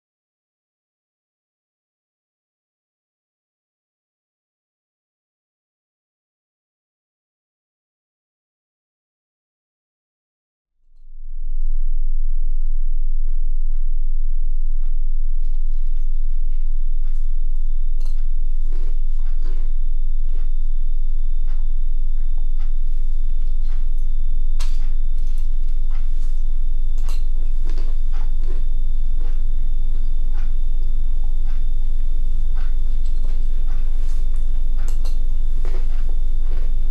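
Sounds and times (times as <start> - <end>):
low droning carrier wave: 10.9 - 36.9
crackles and clicks: 11.0 - 36.9.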